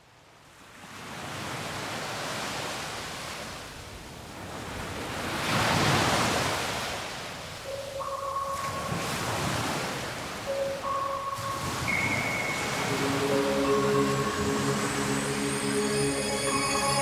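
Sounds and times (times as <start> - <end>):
ocean surf washing onto beach: 0.7 - 17.0
held musical note: 10.5 - 17.0.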